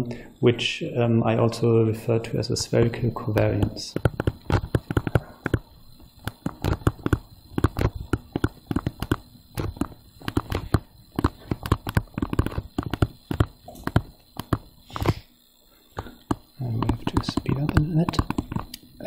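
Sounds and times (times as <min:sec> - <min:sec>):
stylus tapping on touchscreen: 0:03.4 - 0:15.2, 0:16.0 - 0:18.7.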